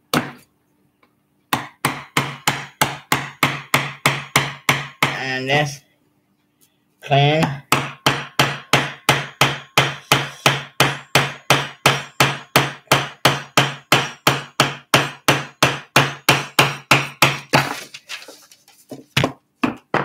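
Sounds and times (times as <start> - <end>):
hammer knocking on chisel handle: 1.6 - 5.2.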